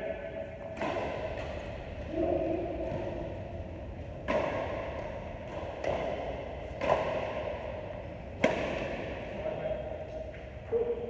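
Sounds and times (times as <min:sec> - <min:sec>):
rackets hitting a shuttlecock: 0:00.7 - 0:03.4, 0:04.0 - 0:09.4.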